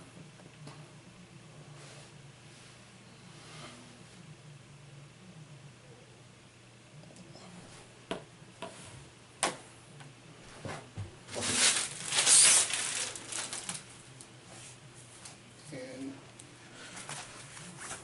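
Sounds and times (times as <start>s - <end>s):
plastic and paper rustling: 11.3s - 14.8s, 16.8s - 18.0s.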